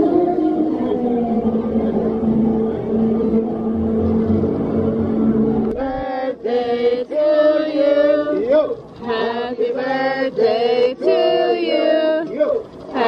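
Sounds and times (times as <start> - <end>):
group singing a celebration song: 5.6 - 13.0.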